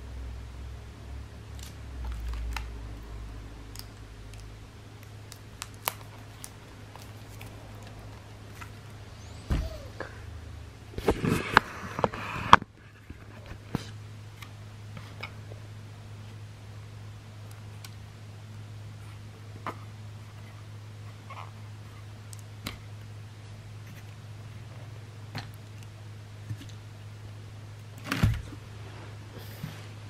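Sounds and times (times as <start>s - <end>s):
thump: 9.4s - 9.8s
loud knocks and plastic rustling: 28.1s - 28.6s.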